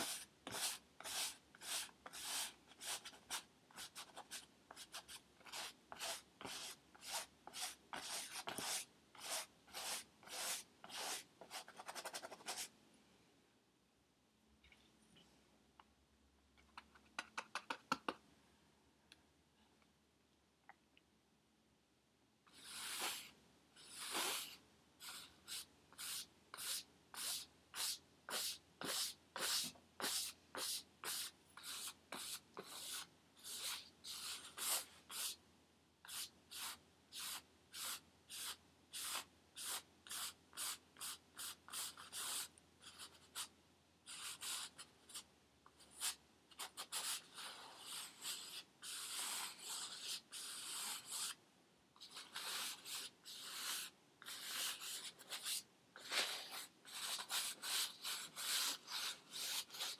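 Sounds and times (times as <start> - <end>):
paintbrush scraping canvas: 0.0 - 12.7, 22.5 - 35.4, 45.9 - 51.4, 52.0 - 59.9.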